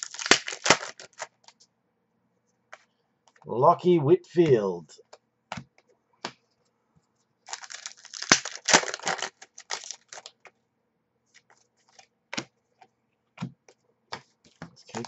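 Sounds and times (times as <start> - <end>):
foil wrapper crinkling: 0.0 - 1.6, 7.5 - 10.4
cards tapping: 5.5 - 6.4.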